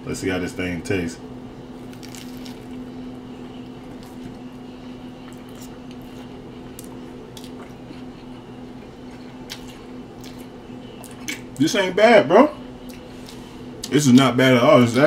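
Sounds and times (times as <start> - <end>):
steady room hum: 0.0 - 15.0
person chewing food: 1.8 - 11.6, 12.8 - 14.3.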